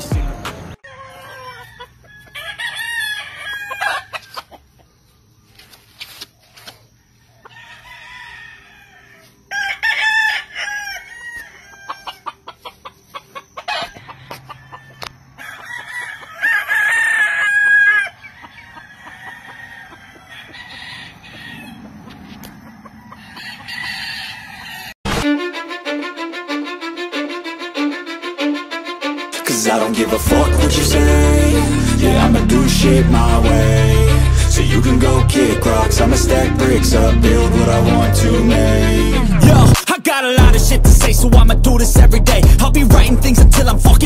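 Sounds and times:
roosters crowing: 0:00.1 - 0:05.0, 0:06.9 - 0:25.0.

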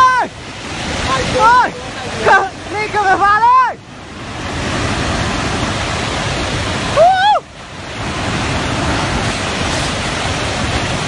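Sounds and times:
person shouting: 0:00.0 - 0:00.3
flood water rushing: 0:00.0 - 0:11.0.

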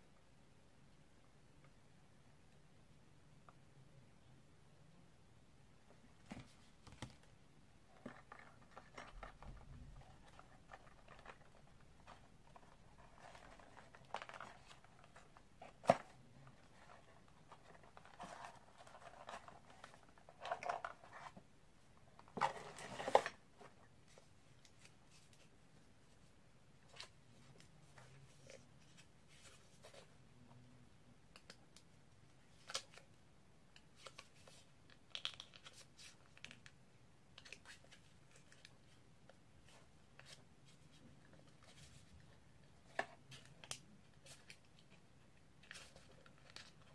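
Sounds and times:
rustling and scraping: 0:07.9 - 0:21.5, 0:22.2 - 0:30.2.

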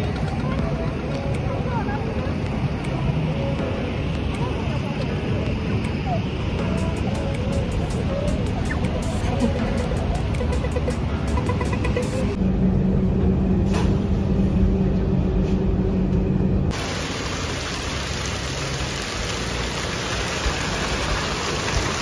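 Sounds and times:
engine hum inside vehicle: 0:00.0 - 0:22.0
heavy rain hissing: 0:16.7 - 0:22.0
rain on window: 0:16.7 - 0:22.0.

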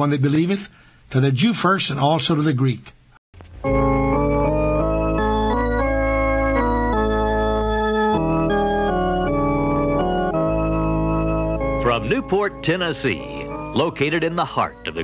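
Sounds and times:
organ playing sustained chords: 0:03.5 - 0:15.0.

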